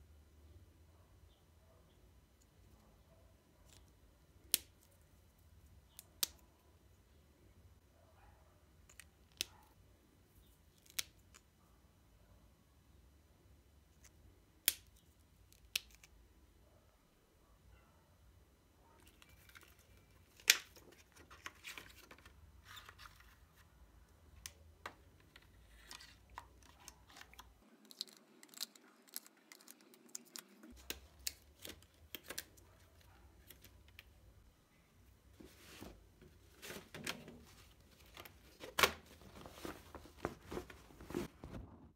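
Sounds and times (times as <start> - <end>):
plastic sleeve crinkling: 35.4 - 41.5.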